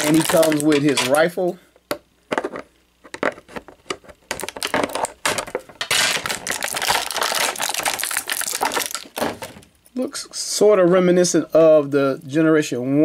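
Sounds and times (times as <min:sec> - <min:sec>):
plastic parts clicking and crinkling: 0:00.0 - 0:01.3, 0:02.3 - 0:09.7.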